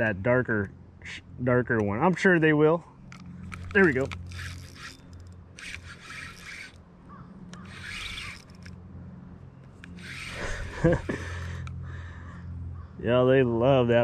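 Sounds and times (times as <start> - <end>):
fishing reel whirring: 3.2 - 8.8, 9.7 - 11.7.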